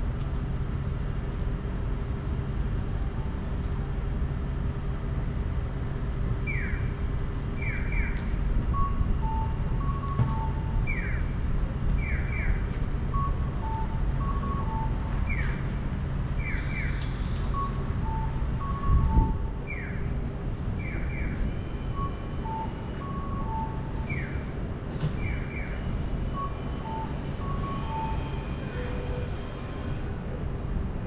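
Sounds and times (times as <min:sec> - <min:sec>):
low hum of car and road: 0:00.0 - 0:31.0
electronic bird-call crossing signal: 0:07.6 - 0:11.4, 0:16.4 - 0:20.0, 0:20.8 - 0:24.5, 0:25.2 - 0:30.1.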